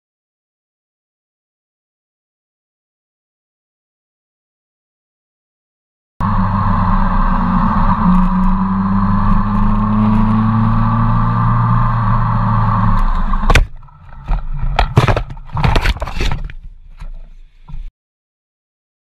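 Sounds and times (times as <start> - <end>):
knocks and scraping on road: 6.5 - 17.9.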